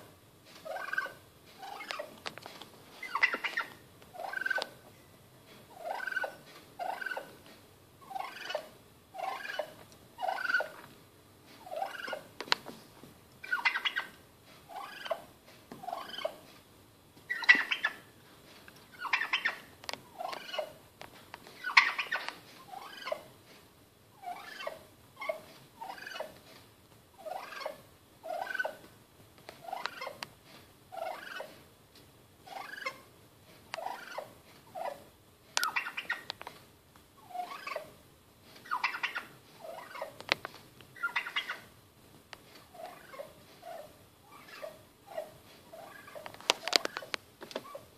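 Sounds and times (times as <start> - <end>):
turkey calling: 0.6 - 2.1, 3.0 - 4.8, 5.7 - 7.4, 8.0 - 10.9, 11.6 - 12.3, 13.4 - 16.4, 17.3 - 18.1, 18.9 - 20.8, 21.6 - 23.3, 24.2 - 26.4, 27.2 - 28.9, 30.9 - 31.6, 32.4 - 33.1, 33.8 - 36.3, 37.2 - 38.0, 38.6 - 40.2, 41.0 - 41.7, 42.7 - 47.9.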